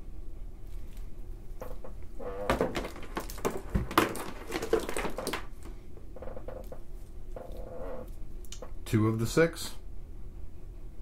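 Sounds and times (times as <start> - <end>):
cables rustling: 0.6 - 8.8.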